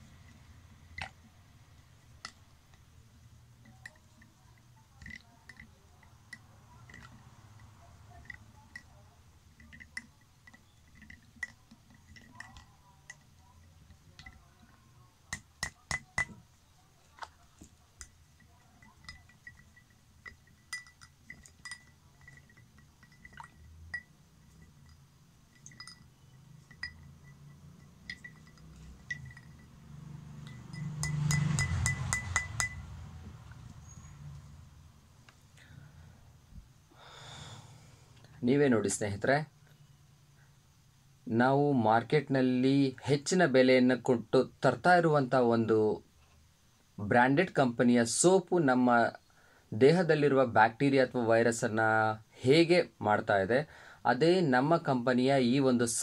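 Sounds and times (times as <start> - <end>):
spoons clinking in glasses: 18.0 - 29.8, 30.4 - 32.9.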